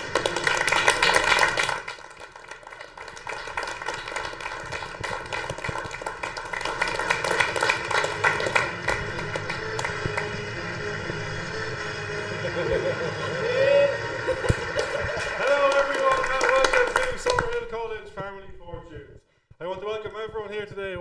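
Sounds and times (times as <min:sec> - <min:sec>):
small group clapping: 0:00.0 - 0:10.6, 0:14.0 - 0:17.9.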